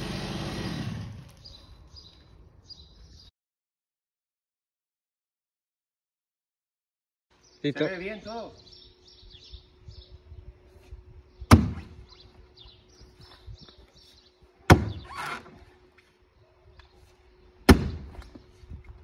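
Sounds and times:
sledgehammer blows thudding: 11.5 - 12.0, 14.6 - 15.2, 17.7 - 18.3.

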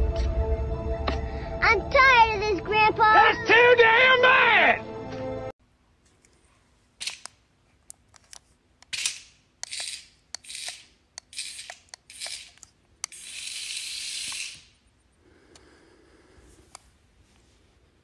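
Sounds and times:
sharp clicks: 7.0 - 14.7.

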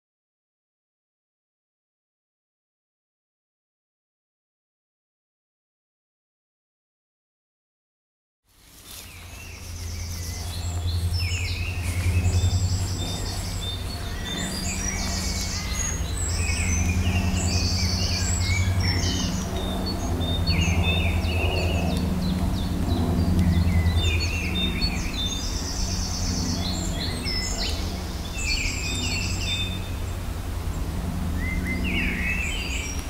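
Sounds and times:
steady low rumble: 8.6 - 33.0
wild birds singing: 8.6 - 33.0.

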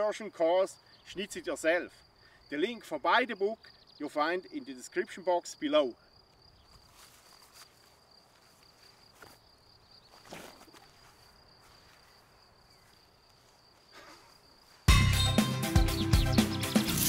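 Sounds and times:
crickets trilling: 0.0 - 14.9
rustle: 6.3 - 9.4.

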